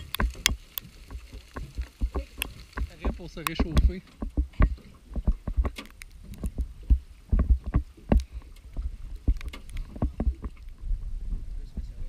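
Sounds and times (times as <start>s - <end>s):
boat hull knocking: 1.1s - 5.8s, 6.5s - 10.6s.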